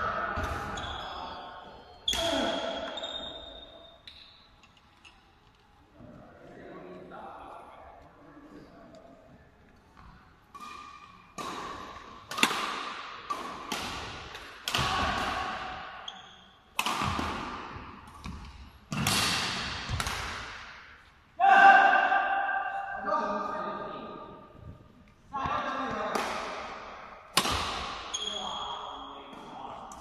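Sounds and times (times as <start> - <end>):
rackets hitting shuttlecock: 10.0 - 20.9, 25.8 - 28.4.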